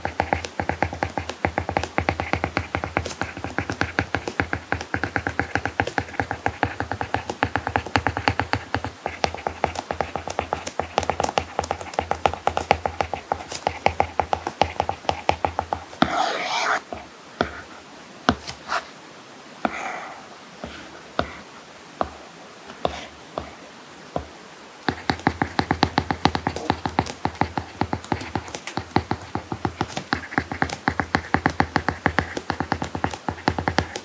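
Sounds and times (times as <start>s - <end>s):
stylus tapping on tablet screen: 0.0s - 17.7s, 24.9s - 34.0s.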